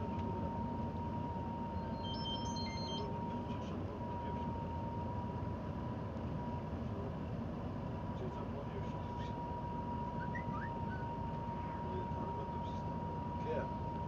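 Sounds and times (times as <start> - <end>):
thin steady whine: 0.0 - 14.0
vehicle cabin road rumble: 0.0 - 14.0
electronic beeps: 1.7 - 3.2.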